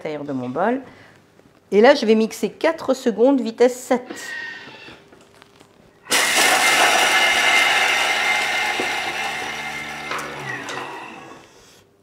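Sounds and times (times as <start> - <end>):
food processor chopping: 6.1 - 11.5.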